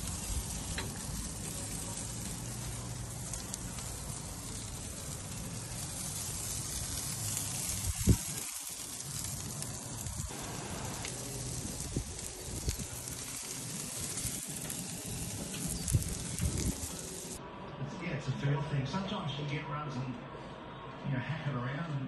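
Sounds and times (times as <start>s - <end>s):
food sizzling on a griddle: 0.0s - 17.4s.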